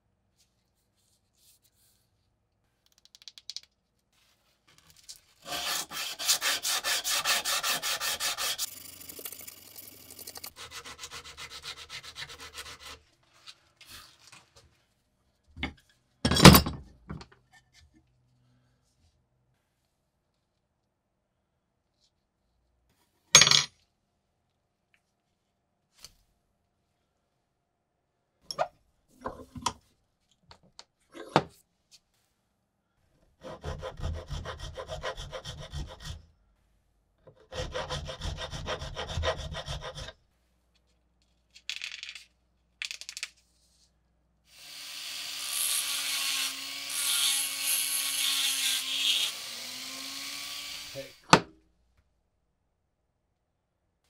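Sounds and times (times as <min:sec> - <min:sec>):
scraping on wooden block: 0:05.4 - 0:08.7
file rasping on steel teeth: 0:05.4 - 0:08.8, 0:10.5 - 0:13.0, 0:33.4 - 0:36.2, 0:37.4 - 0:40.2.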